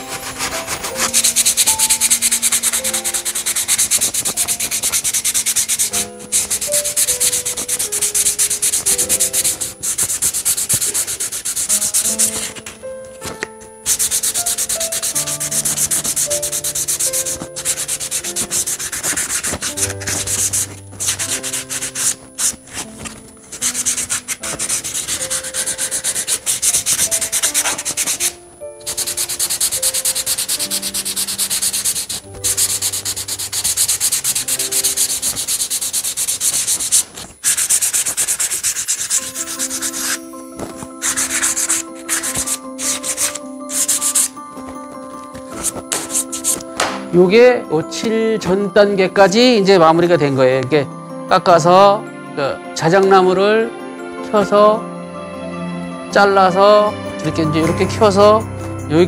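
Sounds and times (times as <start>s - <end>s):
hand sanding wood: 0.0s - 44.7s, 45.3s - 47.2s.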